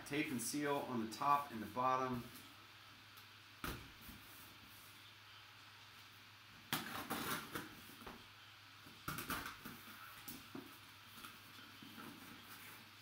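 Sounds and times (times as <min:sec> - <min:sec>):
packing tape being cut: 0:06.7 - 0:07.8.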